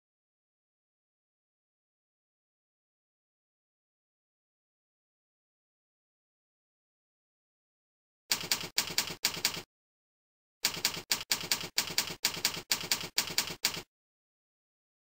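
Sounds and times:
typewriter keys clacking: 8.3 - 9.6, 10.6 - 13.9.

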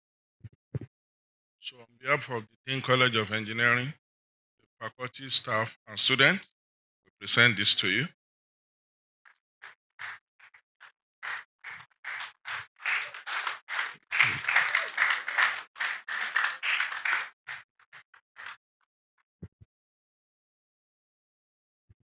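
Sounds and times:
audience clapping: 9.6 - 18.6.

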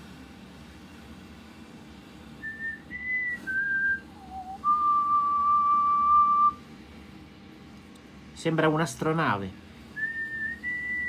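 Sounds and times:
man whistling: 2.4 - 6.6, 10.0 - 11.0.

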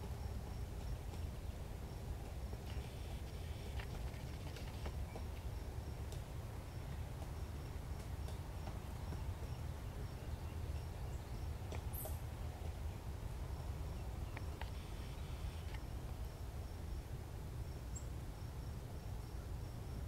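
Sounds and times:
insect chirping: 1.9 - 6.0, 13.2 - 20.0
faint clicks: 14.3 - 14.9.

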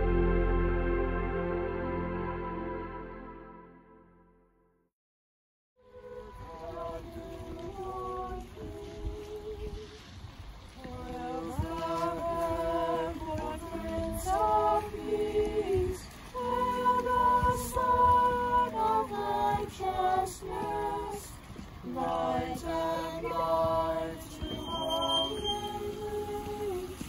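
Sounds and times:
women and children singing a carol: 5.8 - 27.0.

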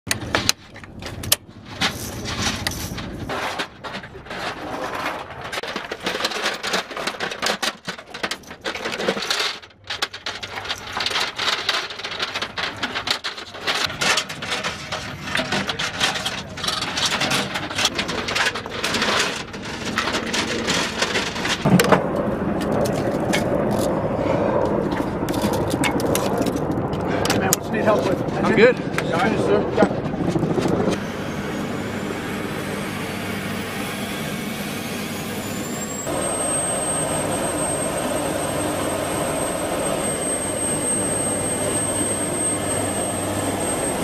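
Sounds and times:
metal gun parts rattling: 0.1 - 21.8.

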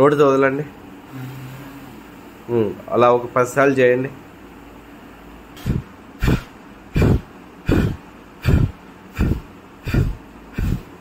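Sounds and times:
person breathing out hard in puffs: 5.6 - 11.0.

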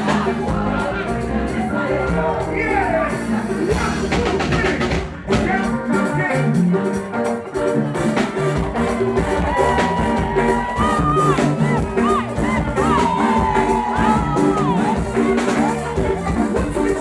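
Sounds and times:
live gospel band music: 0.0 - 17.0.

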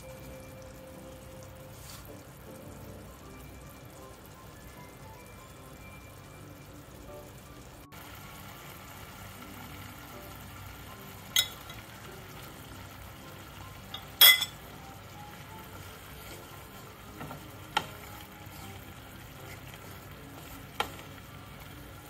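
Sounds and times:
sauce sizzling in frying pan: 0.0 - 22.0
wooden spoon knocking against pan: 17.2 - 18.1, 20.7 - 21.1.

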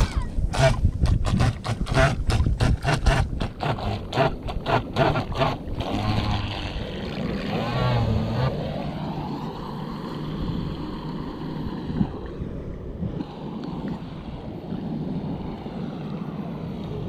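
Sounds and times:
electric boat motor whining: 0.0 - 12.0
wind rumbling on microphone: 0.0 - 17.0.

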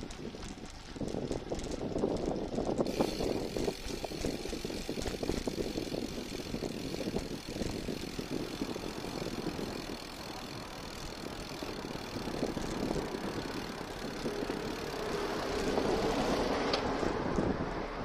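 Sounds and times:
bicycle road rumble: 0.0 - 18.0
wind on microphone: 0.0 - 18.0.

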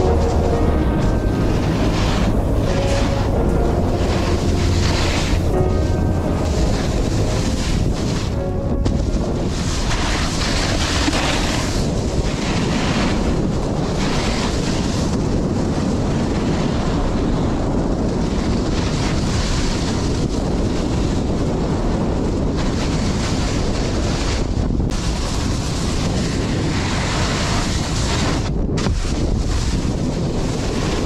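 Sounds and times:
wind buffeting microphone: 0.0 - 31.0
snowboard carving snow hiss: 9.6 - 16.9, 25.0 - 31.0.

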